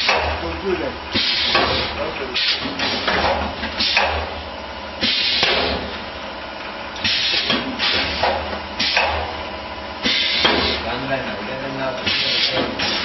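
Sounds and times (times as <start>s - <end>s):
steady low machine hum: 0.0s - 13.0s
short machine hiss: 5.0s - 5.9s.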